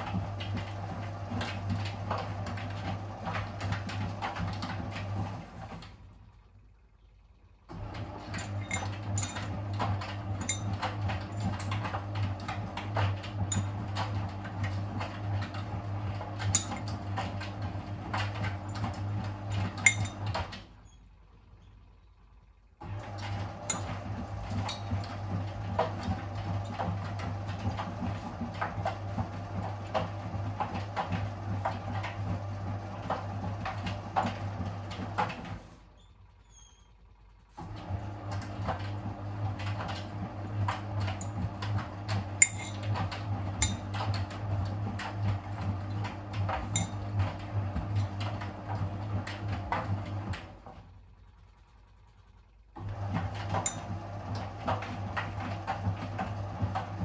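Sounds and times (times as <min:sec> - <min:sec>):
washing machine drum motor humming: 0:00.0 - 0:57.0
laundry clinking in drum: 0:08.0 - 0:20.6, 0:23.1 - 0:29.0, 0:40.6 - 0:49.4, 0:53.3 - 0:56.2.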